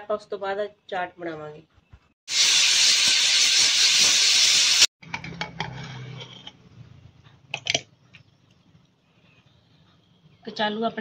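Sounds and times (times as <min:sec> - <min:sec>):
pressure cooker hissing steam: 0:02.3 - 0:04.9
knife scraping metal pot: 0:05.4 - 0:06.7.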